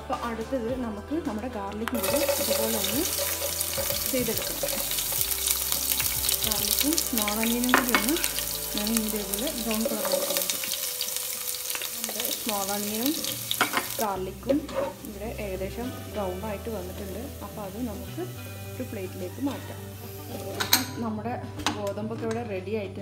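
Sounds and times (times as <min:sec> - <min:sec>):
garlic and shallots sizzling in fat: 0:01.9 - 0:21.0
spatula stirring against pan: 0:02.0 - 0:18.5.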